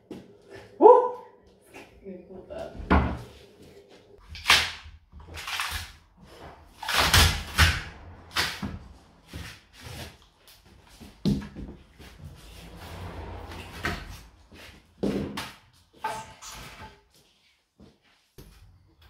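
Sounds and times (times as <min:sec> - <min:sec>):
wooden beam being pried off: 0:06.7 - 0:08.8.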